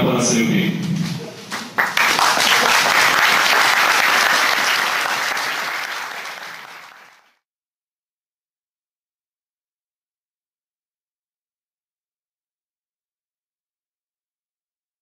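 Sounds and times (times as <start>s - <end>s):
audience applauding: 1.5s - 7.4s.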